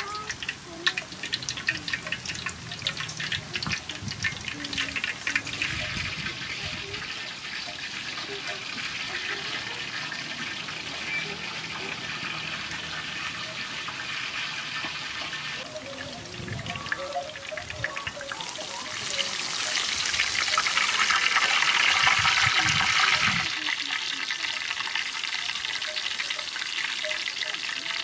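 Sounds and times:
shrimp deep-frying in oil: 0.0 - 28.0.

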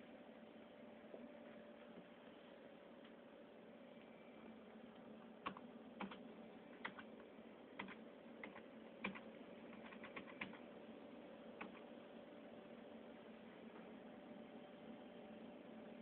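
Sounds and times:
steady low hum: 0.0 - 16.0
computer keyboard keystrokes: 5.4 - 7.1, 7.8 - 10.6, 11.6 - 11.9.

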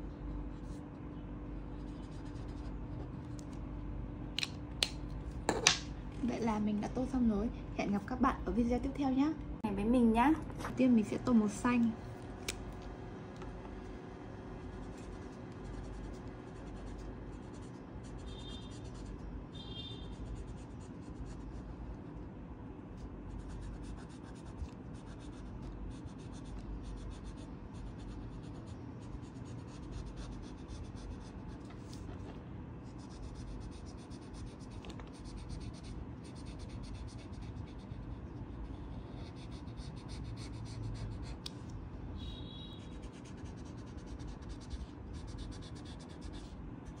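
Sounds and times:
felt-tip marker scratching on paper: 14.7 - 19.2, 23.3 - 32.1, 32.8 - 41.5, 42.8 - 47.0.

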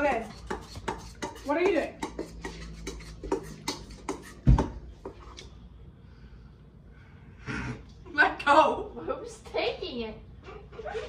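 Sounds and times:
utensils and bowl clicking: 0.0 - 4.4.

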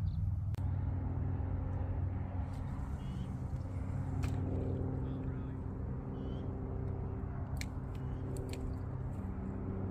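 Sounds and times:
low motor hum: 0.0 - 9.9
faint bird chirp: 2.8 - 3.4, 5.0 - 6.6.

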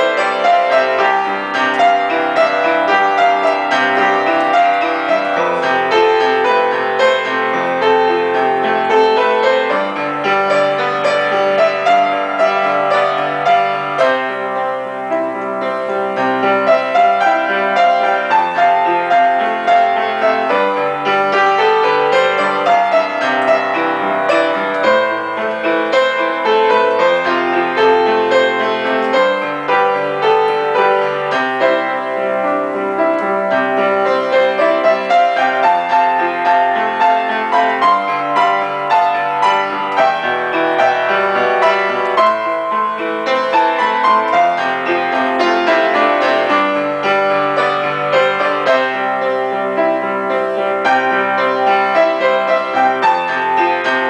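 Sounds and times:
upright piano playing: 0.0 - 54.0.

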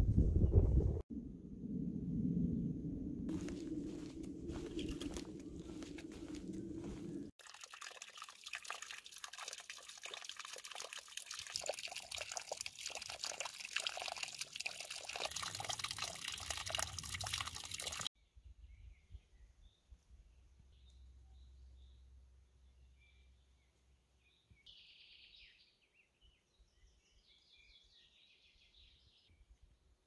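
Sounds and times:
water trickling from wooden spout: 7.4 - 18.1
soft bird chirps: 18.2 - 29.6.

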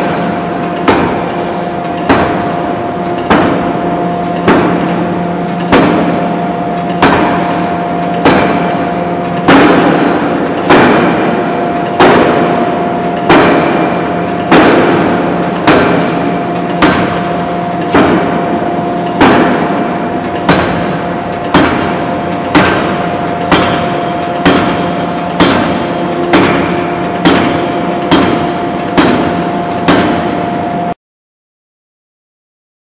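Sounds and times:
forging hammer blows ringing: 0.0 - 31.0
machine hum: 0.0 - 31.0.

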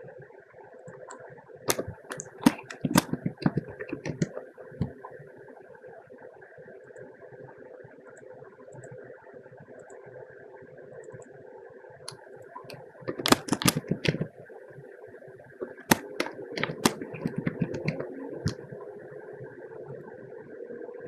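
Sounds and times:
steady background hum: 0.0 - 21.0
typing on a keyboard: 1.1 - 5.0, 13.1 - 14.4, 15.6 - 18.6.

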